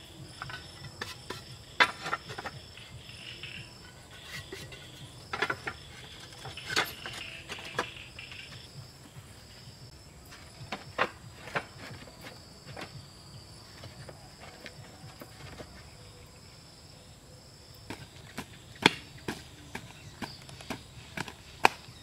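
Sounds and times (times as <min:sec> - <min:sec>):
roof tiles clacking: 0:00.0 - 0:08.7, 0:10.3 - 0:13.1
crickets trilling: 0:00.0 - 0:22.0.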